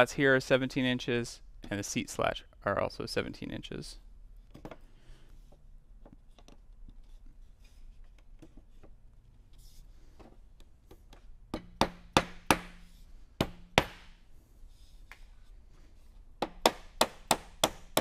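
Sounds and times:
mallet knocking wood: 11.5 - 12.8, 13.4 - 14.2, 16.4 - 18.0.

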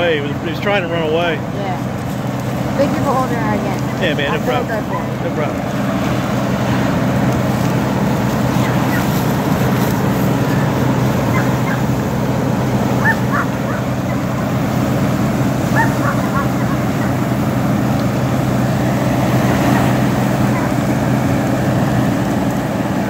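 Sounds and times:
large engine humming: 0.0 - 23.0
short high yelps: 13.0 - 14.3, 15.7 - 17.3.

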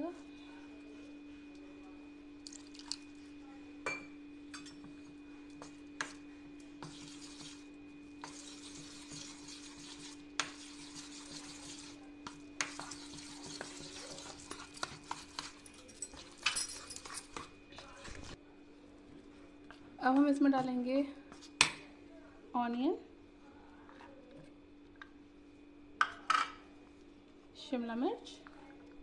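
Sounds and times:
spoon stirring thick batter: 4.7 - 18.4.

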